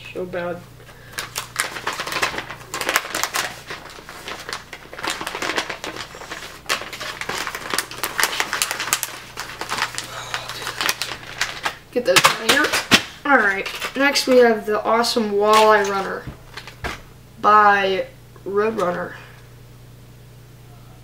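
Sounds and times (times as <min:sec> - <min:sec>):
plastic packaging crinkling: 0:00.9 - 0:17.0.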